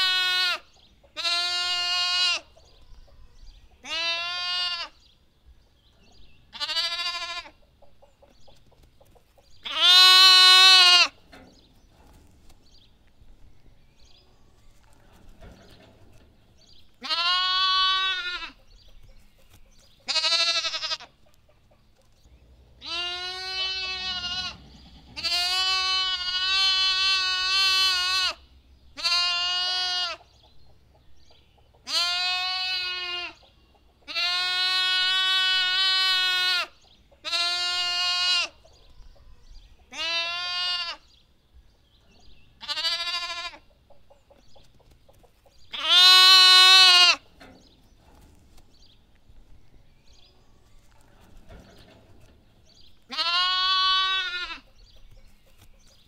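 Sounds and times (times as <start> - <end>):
lamb bleating: 0.0 - 0.6, 1.2 - 2.5, 3.8 - 5.0, 6.5 - 7.6, 9.6 - 11.2, 17.0 - 18.6, 20.1 - 21.1, 22.8 - 28.4, 29.0 - 30.2, 31.9 - 33.4, 34.1 - 38.6, 39.9 - 41.1, 42.6 - 43.6, 45.7 - 47.2, 53.1 - 54.6.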